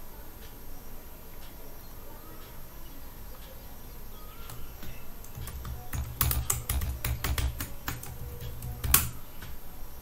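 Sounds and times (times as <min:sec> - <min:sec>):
keyboard typing: 0:04.4 - 0:09.6.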